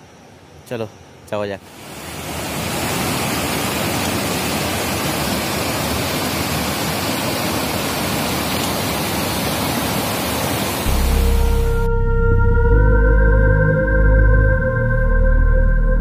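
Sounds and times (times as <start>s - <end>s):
mountain stream rushing: 1.6s - 11.8s.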